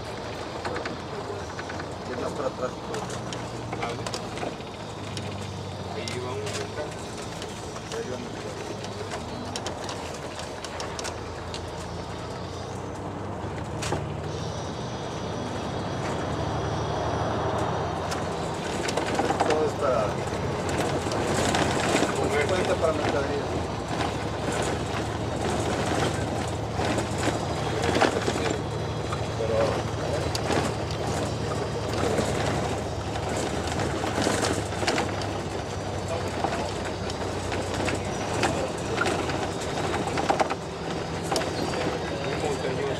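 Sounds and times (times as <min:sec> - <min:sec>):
low engine drone: 0:00.0 - 0:42.9
vehicle rumble from inside: 0:00.0 - 0:42.9.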